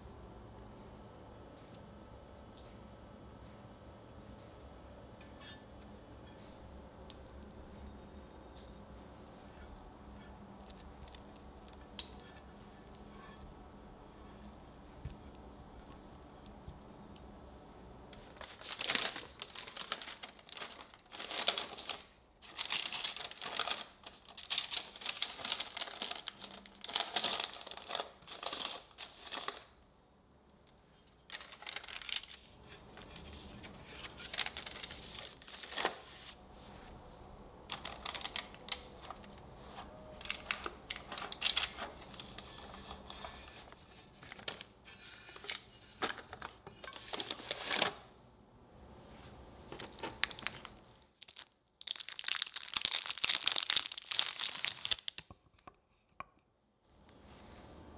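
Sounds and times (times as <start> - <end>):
parchment paper crinkling: 9.5 - 16.9, 18.1 - 29.8, 30.9 - 37.0, 37.6 - 48.1, 49.7 - 55.7.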